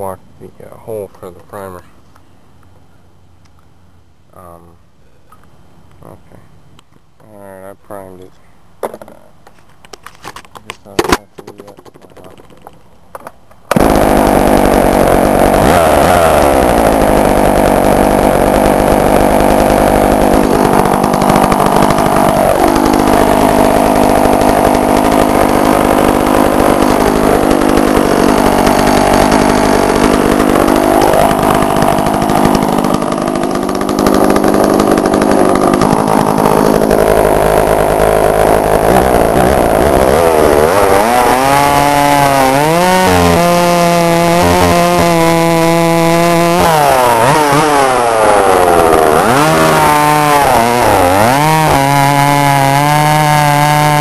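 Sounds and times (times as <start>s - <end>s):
chainsaw running: 11.0s - 12.8s, 13.7s - 54.0s.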